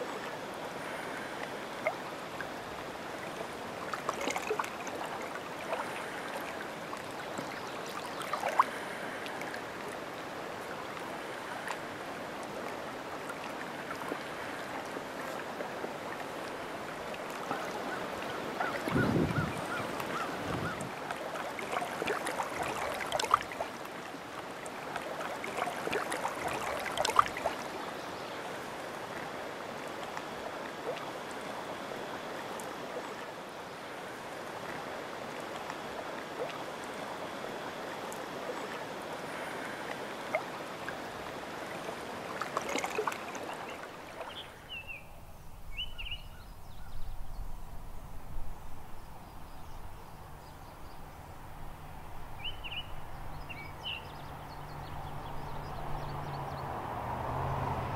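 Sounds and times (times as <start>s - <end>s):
water splashes: 0.0s - 46.1s, 51.1s - 57.9s
water lapping at shore: 0.0s - 57.9s
wind: 0.0s - 57.9s
bird chirps: 45.7s - 47.2s.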